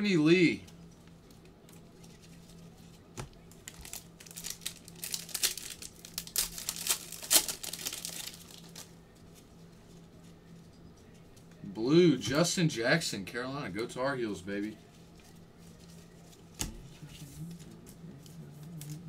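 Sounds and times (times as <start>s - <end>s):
faint steady hum: 0.0s - 19.0s
plastic wrapper crinkling: 1.1s - 9.4s.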